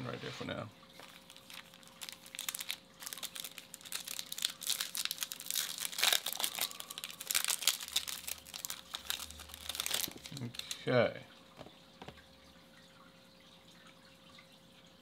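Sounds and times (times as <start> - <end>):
foil wrapper crinkling: 1.0 - 10.9.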